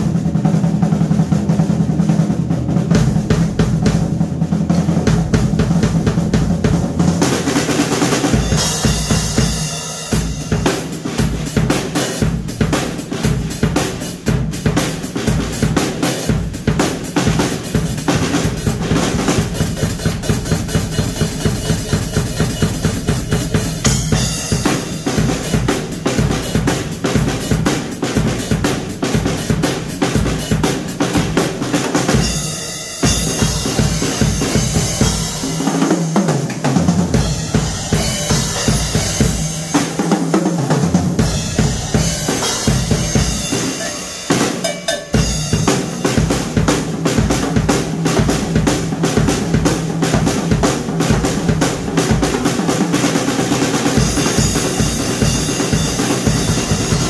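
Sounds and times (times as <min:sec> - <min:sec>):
bass drum strokes: 0:00.0 - 0:44.4
snare drum rolls: 0:00.0 - 0:57.0.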